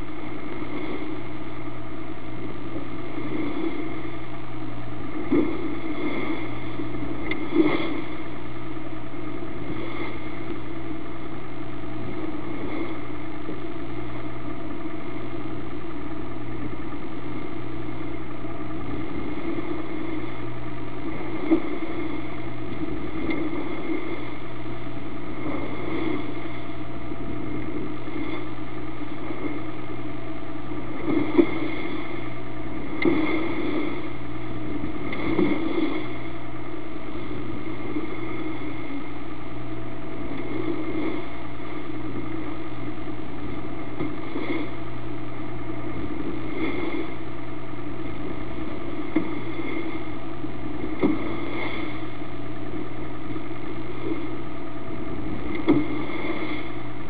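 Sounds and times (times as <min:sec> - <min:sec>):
boat engine running: 0:00.0 - 0:57.0
bow thumping waves: 0:00.0 - 0:57.0.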